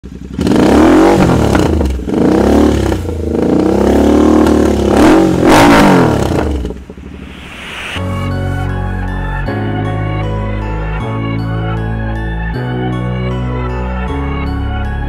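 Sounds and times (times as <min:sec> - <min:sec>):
motorcycle engine revving: 0:00.0 - 0:08.1.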